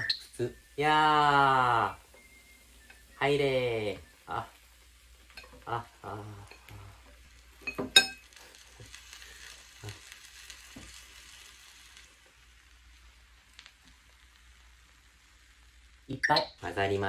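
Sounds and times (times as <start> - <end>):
food sizzling in a pot: 0.0 - 17.0
utensil clinking on pot: 7.6 - 8.4.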